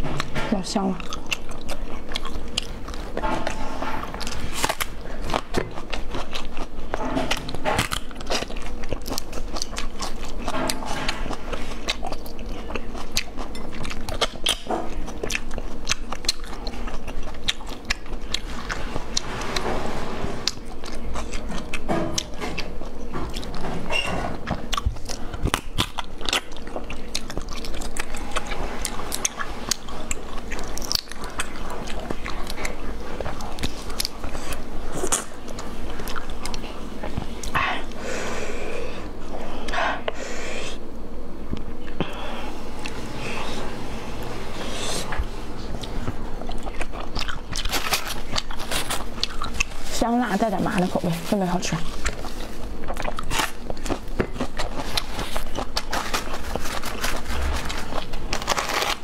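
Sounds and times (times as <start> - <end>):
biting and chewing: 0.0 - 38.1, 41.5 - 59.0
crisp crunches: 46.5 - 59.0.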